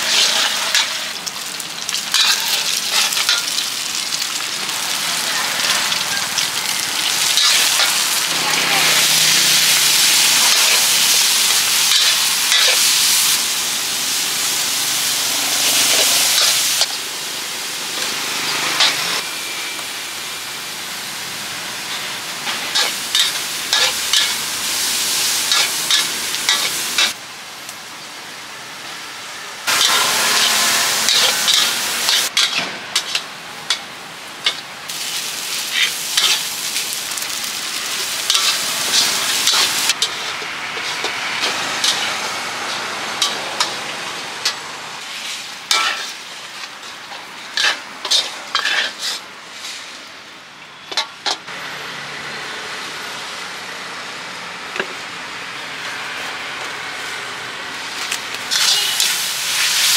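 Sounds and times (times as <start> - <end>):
metal spatula scraping wok: 0.0 - 1.2, 2.1 - 3.6, 4.4 - 13.4, 15.3 - 17.0, 18.0 - 19.7, 21.8 - 27.2, 29.7 - 36.6, 37.2 - 49.9, 57.9 - 59.9
fried rice sizzling in a wok: 0.0 - 59.9.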